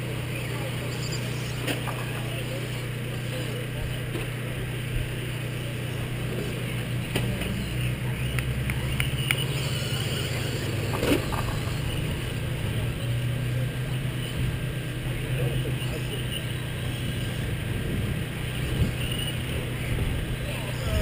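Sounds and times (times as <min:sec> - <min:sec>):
rc race cars running: 0:00.0 - 0:21.0
steady low hum: 0:00.0 - 0:21.0
sharp clicks: 0:08.3 - 0:11.9.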